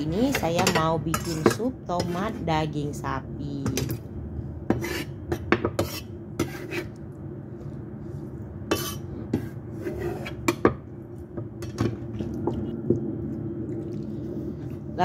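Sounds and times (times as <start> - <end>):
steady low hum: 0.0 - 15.0
knife on wooden chopping board: 4.7 - 7.0.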